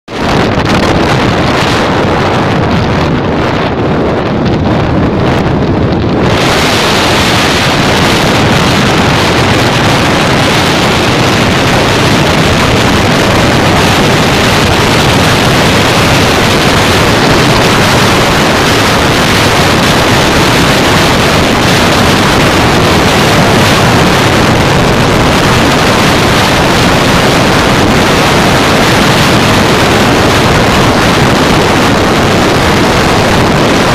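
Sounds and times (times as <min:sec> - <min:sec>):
motorcycle engine: 0:00.0 - 0:33.9
road noise: 0:00.0 - 0:33.9
wind buffeting microphone: 0:00.1 - 0:33.9.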